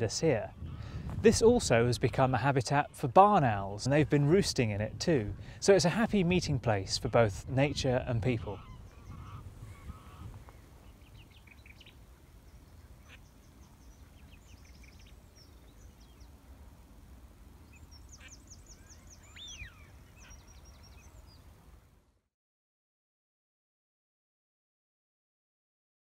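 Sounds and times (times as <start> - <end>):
small birds calling: 0.0 - 1.1, 6.3 - 21.8
distant geese honking: 6.8 - 16.6.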